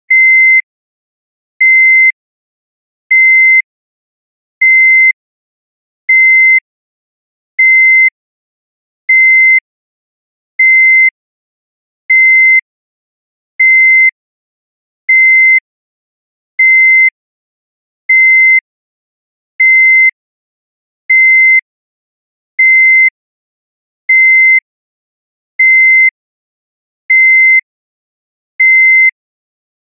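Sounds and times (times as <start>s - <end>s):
heart monitor beeping: 0.1s - 0.6s, 1.6s - 2.2s, 3.1s - 3.7s, 4.6s - 5.2s, 6.1s - 6.6s, 7.6s - 8.1s, 9.1s - 9.6s, 10.6s - 11.1s, 12.1s - 12.6s, 13.6s - 14.1s, 15.1s - 15.6s, 16.6s - 17.1s, 18.1s - 18.6s, 19.6s - 20.1s, 21.1s - 21.6s, 22.6s - 23.1s, 24.1s - 24.6s, 25.6s - 26.1s, 27.1s - 27.6s, 28.6s - 29.1s.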